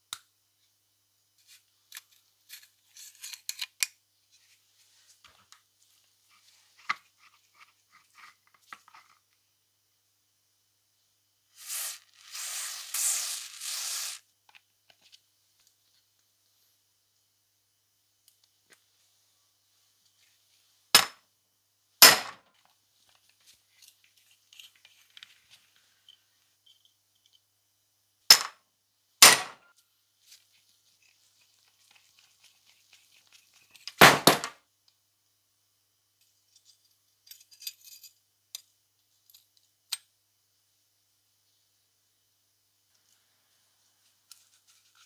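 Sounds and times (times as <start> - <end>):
small metal clinks: 36.5 - 39.6.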